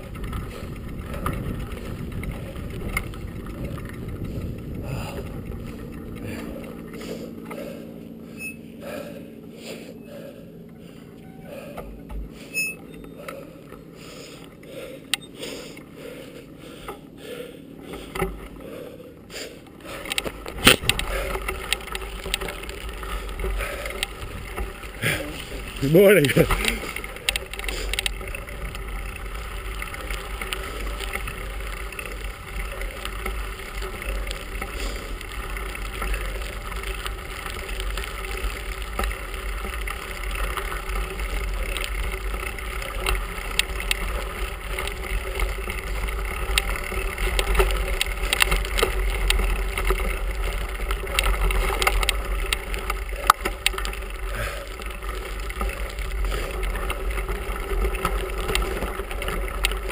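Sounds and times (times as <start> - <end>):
wind on microphone: 0.0 - 6.8
bicycle tyres rumbling on gravel: 0.0 - 59.9
bike clicks and rattles: 0.0 - 59.9.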